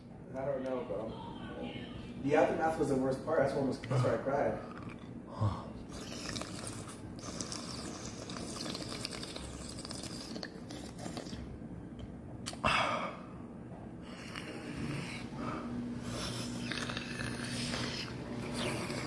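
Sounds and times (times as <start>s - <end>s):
wet mouth and chewing noises: 4.6s - 5.2s, 5.9s - 11.6s, 12.4s - 12.6s, 16.0s - 19.0s.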